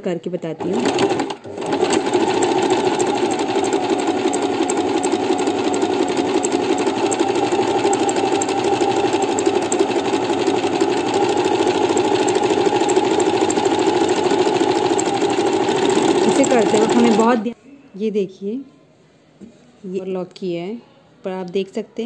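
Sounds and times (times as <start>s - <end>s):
electric sewing machine running: 0.6s - 17.5s.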